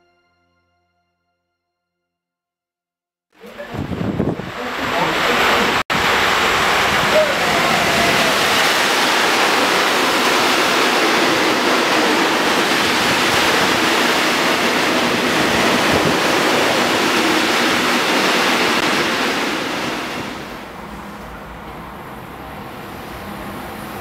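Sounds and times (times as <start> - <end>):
freight train passing: 3.4 - 24.0.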